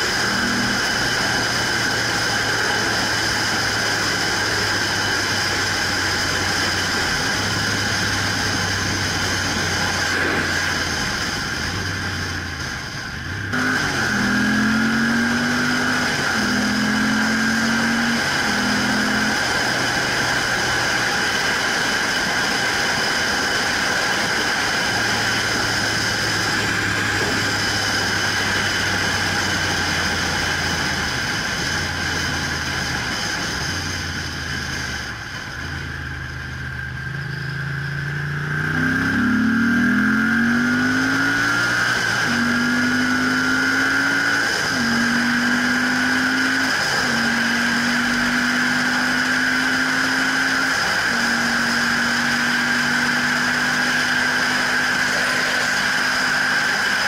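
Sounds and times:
wind rush: 0:00.0 - 0:14.3, 0:17.7 - 0:35.2
motorcycle engine: 0:00.0 - 0:57.0.

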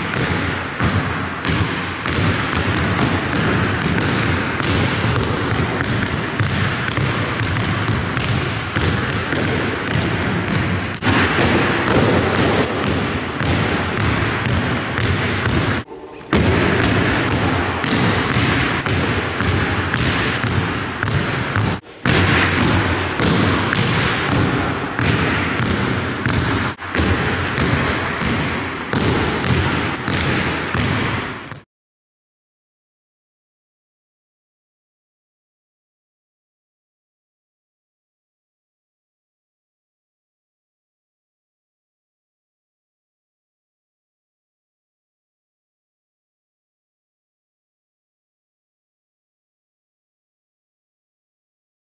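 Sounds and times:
basketballs bouncing on gym floor: 0:00.0 - 0:31.6.

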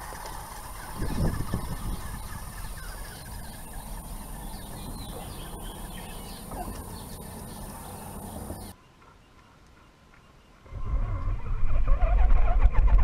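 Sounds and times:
steady low rumble: 0:00.0 - 0:08.8
birds chirping: 0:00.0 - 0:10.9.

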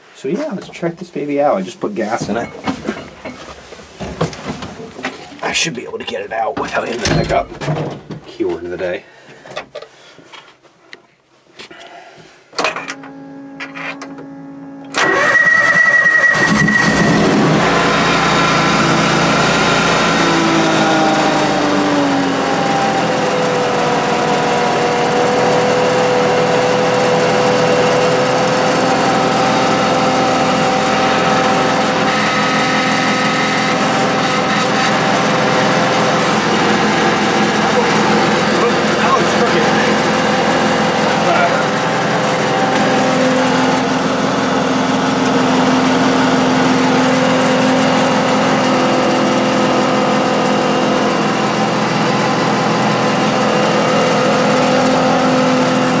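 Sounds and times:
tractor engine running: 0:14.3 - 0:56.0
starter cranking engine: 0:14.9 - 0:46.5.

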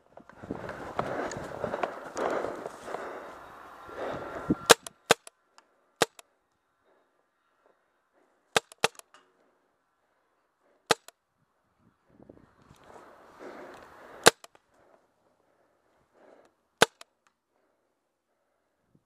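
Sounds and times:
paintball marker shots: 0:04.7 - 0:05.4, 0:06.0 - 0:06.3, 0:08.6 - 0:09.2, 0:10.9 - 0:11.1, 0:14.2 - 0:14.6, 0:16.8 - 0:17.2.

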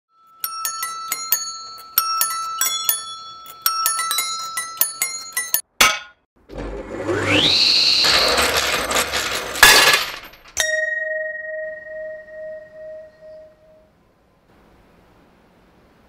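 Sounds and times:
table saw motor whine: 0:06.5 - 0:09.5
bell-like metallic strikes: 0:10.6 - 0:13.9
low hum: 0:10.7 - 0:15.6.

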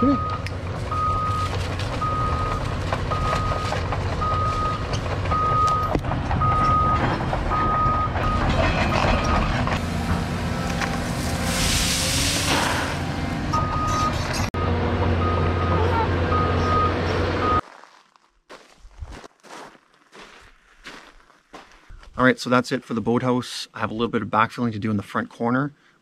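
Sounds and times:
travel alarm beeping: 0:00.0 - 0:08.5, 0:13.5 - 0:17.6
diesel engine running: 0:00.0 - 0:17.6
rushing hiss: 0:11.0 - 0:13.1.

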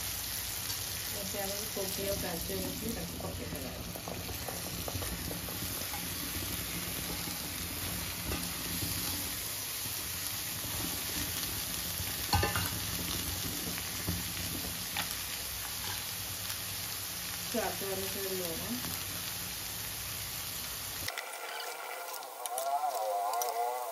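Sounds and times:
beans sizzling in a pan: 0:00.0 - 0:23.9
spatula scraping and tapping metal: 0:03.2 - 0:06.2, 0:21.1 - 0:22.6.

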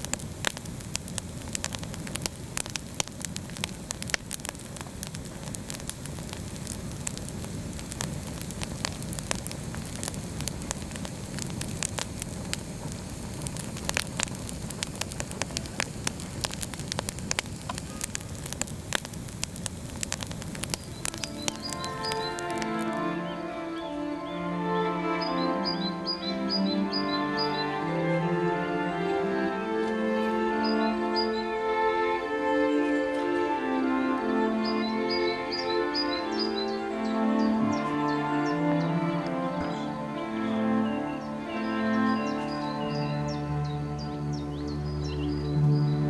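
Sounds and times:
campfire flame rushing: 0:00.0 - 0:23.0
fire crackling and popping: 0:00.0 - 0:23.2, 0:34.6 - 0:38.4.

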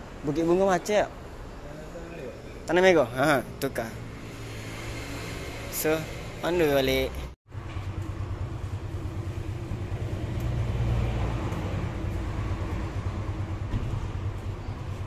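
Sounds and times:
motorcycle engine idling: 0:07.6 - 0:15.0.

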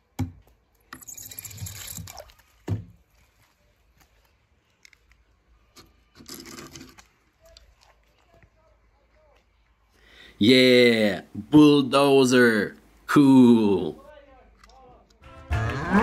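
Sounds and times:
toy cars splashing into water: 0:01.1 - 0:02.7.

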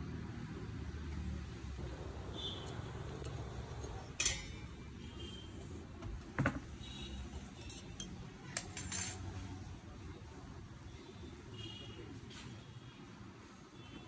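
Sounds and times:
short metallic ring: 0:07.3 - 0:09.3
metal and stone parts clinking: 0:07.4 - 0:09.3.

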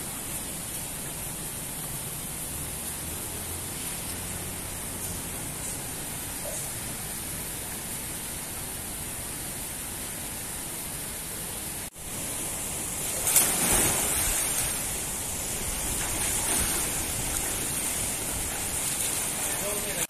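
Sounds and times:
steady hiss: 0:00.0 - 0:20.0
water sloshing: 0:12.1 - 0:20.0
loud splash: 0:12.9 - 0:20.0.

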